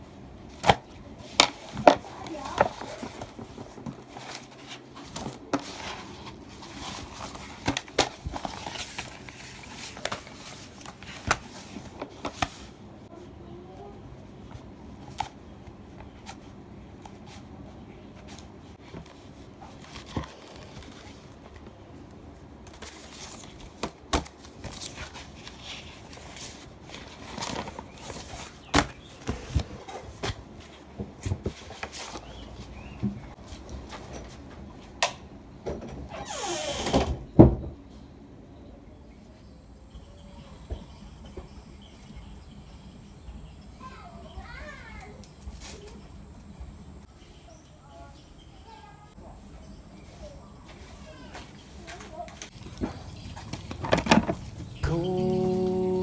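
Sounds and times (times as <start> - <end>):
plastic sheet crinkling: 1.6 - 12.6.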